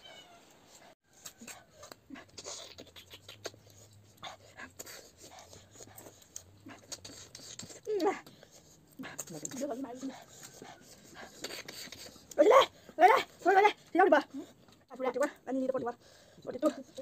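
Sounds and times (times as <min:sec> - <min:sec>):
lip smacks: 0:01.1 - 0:12.4
sucking slurps: 0:01.1 - 0:12.5.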